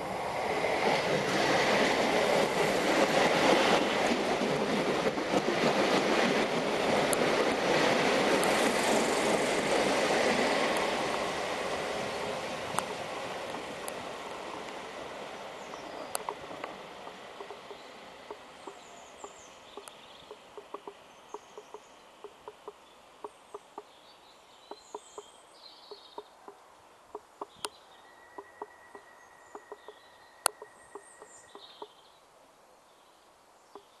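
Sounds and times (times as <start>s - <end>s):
train wheels clicking: 0.8s - 14.9s, 15.6s - 22.8s
bird chirps: 15.6s - 32.2s, 33.7s - 34.0s.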